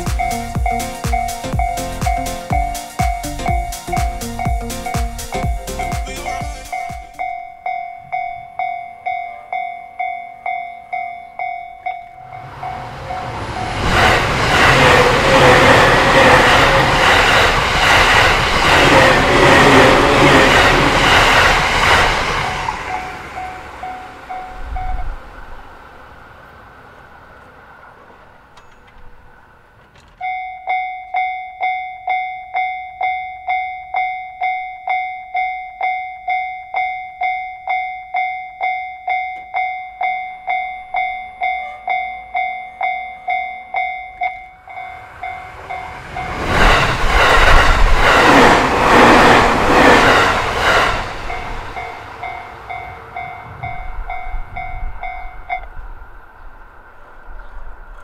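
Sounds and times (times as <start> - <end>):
level crossing warning bell: 0.0 - 17.3, 22.4 - 25.3, 28.6 - 47.4, 50.2 - 55.8
train passing: 0.0 - 58.0
train wheels clacking on rail joints: 10.5 - 25.1, 27.4 - 30.4, 41.0 - 55.9.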